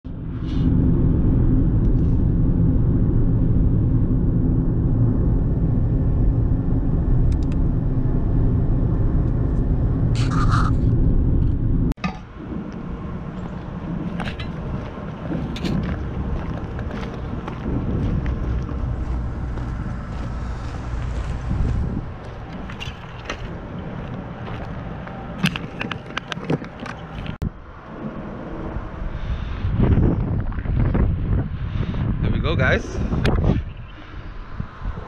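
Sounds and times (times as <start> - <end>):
car cabin road rumble: 0.1 - 29.0
wind on microphone: 0.1 - 35.0
footsteps on gravel: 13.3 - 27.3.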